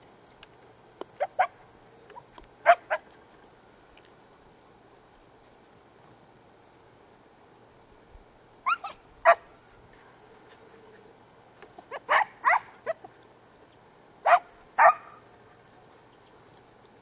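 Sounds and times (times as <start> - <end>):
dogs barking: 1.2 - 3.1, 8.6 - 9.5, 11.9 - 13.1, 14.2 - 15.2.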